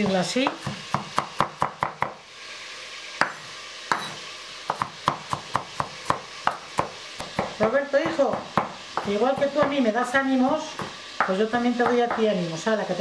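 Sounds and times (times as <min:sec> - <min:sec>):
knife chopping on wooden board: 0:00.0 - 0:02.2, 0:03.2 - 0:09.8, 0:10.8 - 0:12.3.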